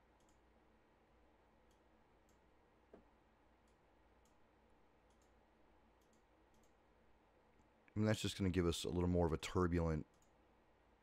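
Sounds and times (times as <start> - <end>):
computer mouse clicks: 0.2 - 0.4, 1.6 - 4.4, 5.0 - 5.4, 6.0 - 6.8, 10.1 - 10.4.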